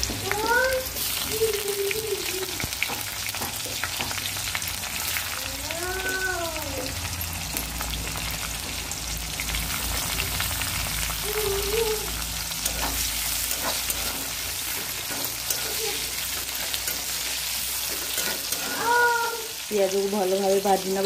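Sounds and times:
onions sizzling in hot oil: 0.0 - 21.0
metal spatula scraping pan: 12.1 - 19.1.

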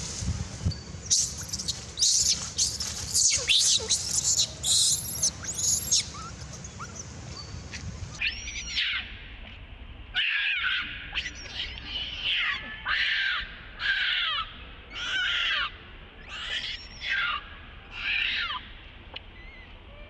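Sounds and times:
infant monkey screaming: 1.1 - 7.0, 8.2 - 9.2, 10.2 - 18.7.

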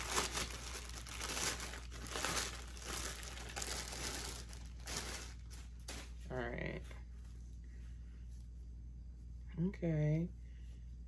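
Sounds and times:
plastic packaging crinkling: 0.0 - 6.3.

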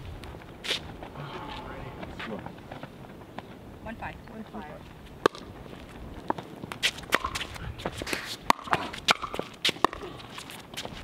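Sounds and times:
footsteps shuffling: 0.0 - 3.6, 4.5 - 11.0
ball bouncing on hard court: 5.2 - 5.5, 6.2 - 10.2.

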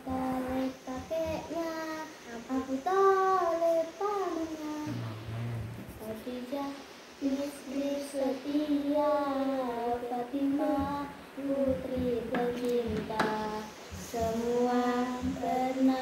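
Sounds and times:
girl singing devotional song: 0.0 - 16.0.

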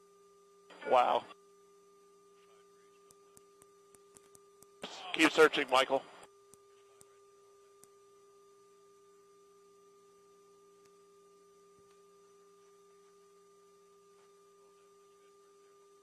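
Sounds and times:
faint electrical hum: 0.0 - 16.0
small clicks: 3.0 - 4.7.

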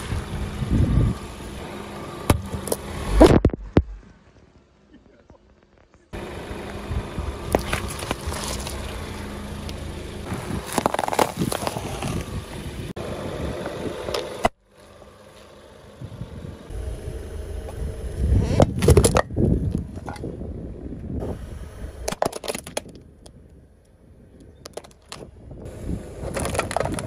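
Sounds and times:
car tyre crushing objects: 2.2 - 4.6, 7.4 - 12.8, 18.4 - 20.3, 22.0 - 23.4, 26.2 - 27.0
car running low: 6.1 - 22.2
metal mug crumpling with cracks: 10.6 - 12.2.

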